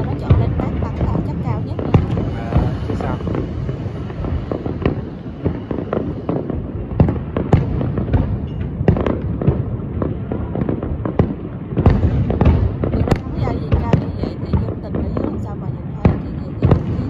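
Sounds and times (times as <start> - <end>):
fireworks bursts and bangs: 0.0 - 17.0.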